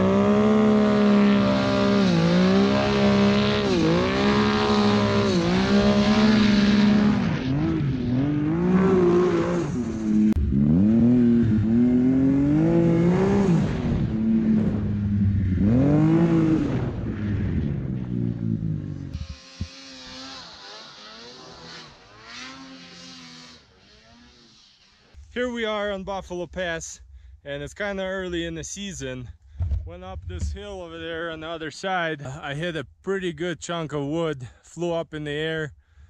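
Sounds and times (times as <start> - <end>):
snowmobile engine revving: 0.0 - 25.9.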